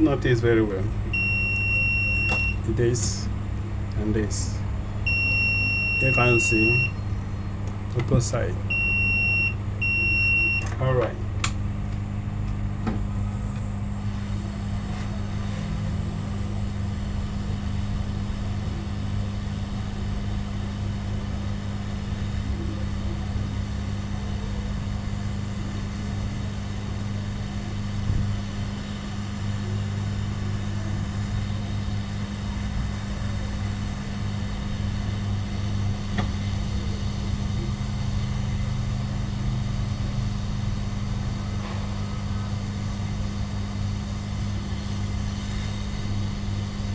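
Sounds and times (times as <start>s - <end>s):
hot air station fan humming: 0.0s - 46.9s
faint high whine: 4.0s - 7.6s.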